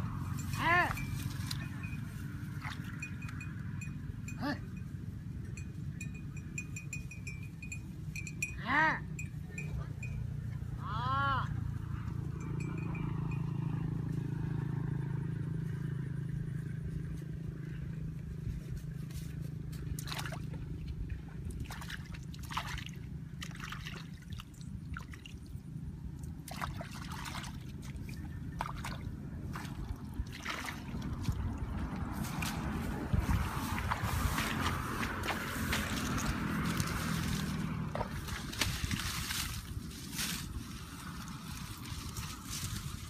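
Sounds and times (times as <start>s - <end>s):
short water splashes: 2.5s - 3.0s, 19.9s - 25.6s, 26.2s - 32.7s, 33.3s - 40.3s
hands sloshing in muddy water: 20.0s - 25.5s, 26.3s - 40.2s.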